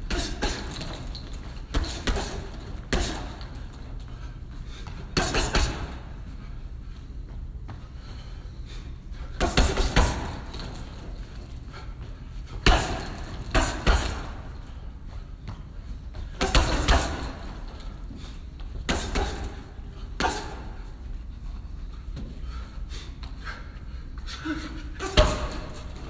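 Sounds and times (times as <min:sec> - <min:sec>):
gloves punching heavy bag: 0:00.0 - 0:03.8, 0:04.8 - 0:06.1, 0:09.4 - 0:11.4, 0:12.5 - 0:14.7, 0:16.2 - 0:20.9, 0:25.0 - 0:26.0.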